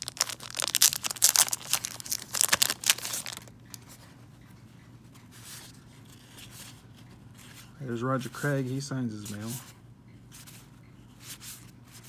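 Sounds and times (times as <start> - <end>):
plastic wrap crinkling and tearing: 0.0 - 3.5.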